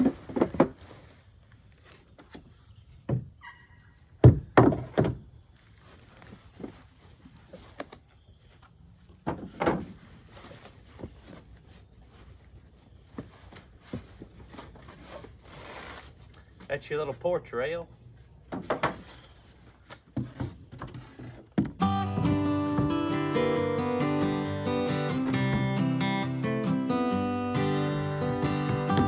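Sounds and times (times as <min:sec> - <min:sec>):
panels knocking on cardboard and wood: 0:04.2 - 0:05.2, 0:09.2 - 0:10.1, 0:18.5 - 0:19.2, 0:19.9 - 0:23.4, 0:28.6 - 0:29.0
cardboard box rustling: 0:09.5 - 0:16.6, 0:18.8 - 0:21.8.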